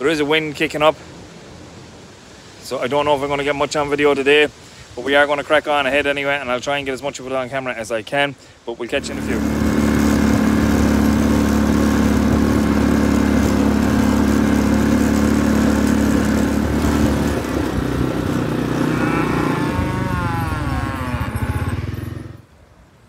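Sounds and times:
quad bike engine running: 9.0s - 22.4s.

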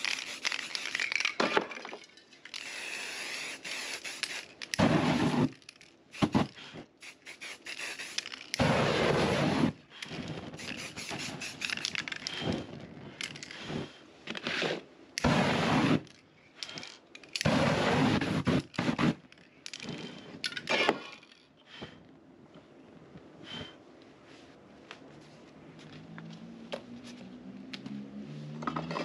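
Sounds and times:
sharp crackles and clicks: 0.0s - 1.4s, 2.1s - 14.4s
whooshes of flame: 8.6s - 14.0s, 15.2s - 16.1s, 17.4s - 19.2s.

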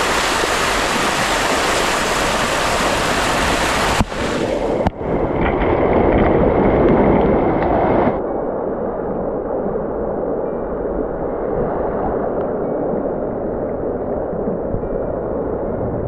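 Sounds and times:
waterfall rushing over rock: 0.0s - 8.2s.

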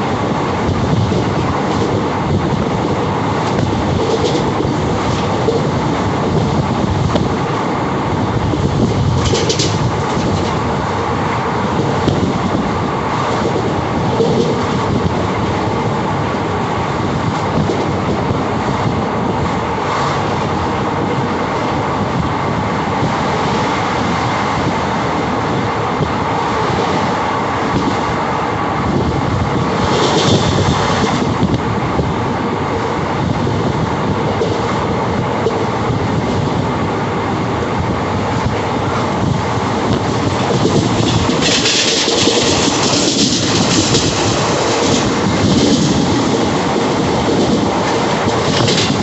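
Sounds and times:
train rumble: 0.0s - 49.0s
wheels clacking on rails: 0.0s - 49.0s.

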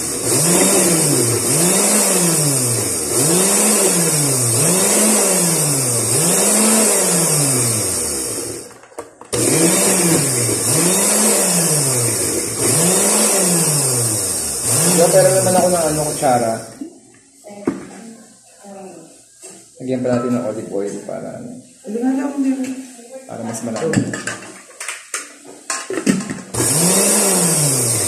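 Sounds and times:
electric blender running: 0.0s - 8.7s, 9.3s - 16.8s, 26.5s - 28.0s.

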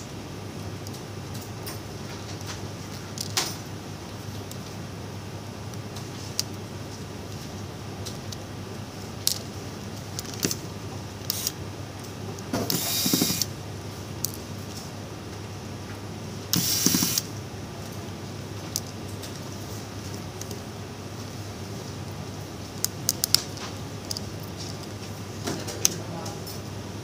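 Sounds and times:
electric screwdriver whirring: 12.7s - 13.5s, 16.6s - 17.3s.

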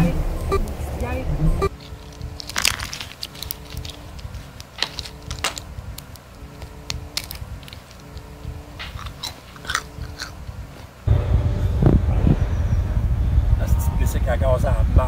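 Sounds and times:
teeth clicking on fingernails: 1.7s - 10.9s.

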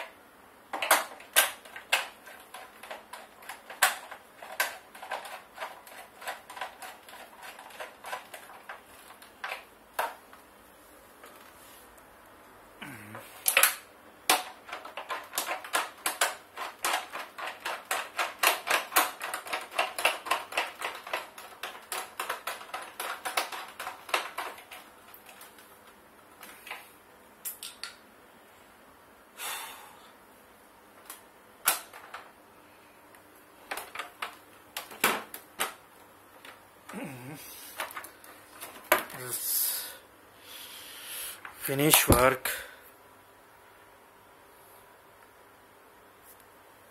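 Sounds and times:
knocks of plastic parts: 0.0s - 10.4s, 13.4s - 25.6s, 33.6s - 35.8s.

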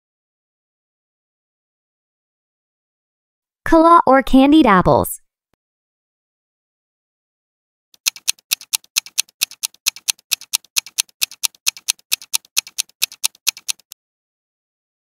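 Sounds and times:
clock ticking timer: 8.0s - 14.0s.

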